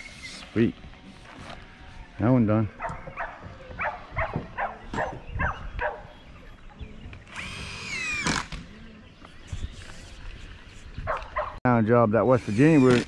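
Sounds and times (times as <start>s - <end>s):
dog barking: 2.8s - 6.1s, 11.1s - 11.6s
power drill whining: 7.3s - 8.6s, 12.3s - 13.0s.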